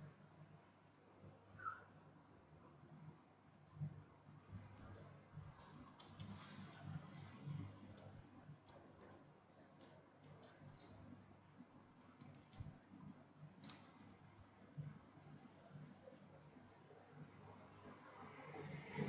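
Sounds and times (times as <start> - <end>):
keyboard typing clicks: 4.4 - 6.4, 7.9 - 9.2, 9.8 - 11.0, 12.0 - 12.8, 13.6 - 14.0.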